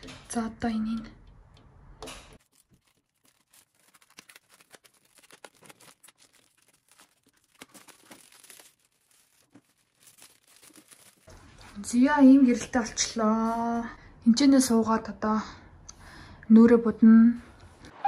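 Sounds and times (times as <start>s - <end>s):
plastic wrap crinkling: 2.3s - 13.6s.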